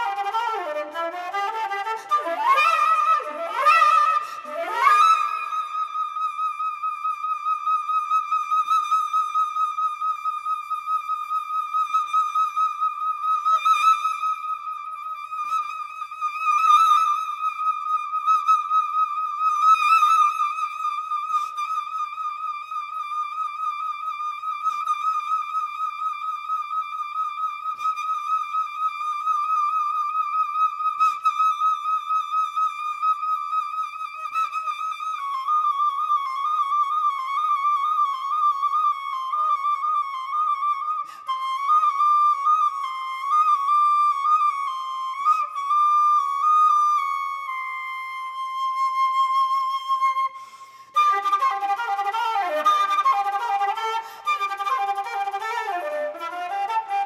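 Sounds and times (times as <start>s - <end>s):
flute holding a high note: 33.2s - 57.0s.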